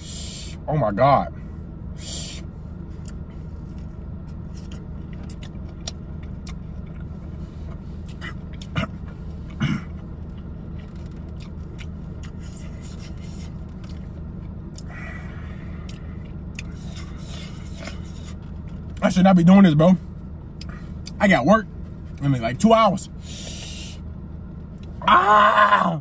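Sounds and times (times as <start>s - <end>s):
car cabin hum: 0.0s - 26.0s
man eating: 2.0s - 19.0s.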